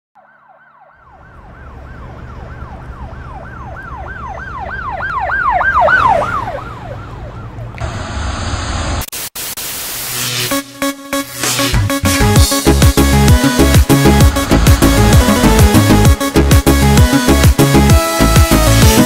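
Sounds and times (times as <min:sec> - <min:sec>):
siren in fast falling sweeps: 0:00.2 - 0:07.6, 0:12.6 - 0:17.4
hiss: 0:08.7 - 0:12.8
electronic dance music: 0:10.0 - 0:19.0
low rumble: 0:12.9 - 0:17.0.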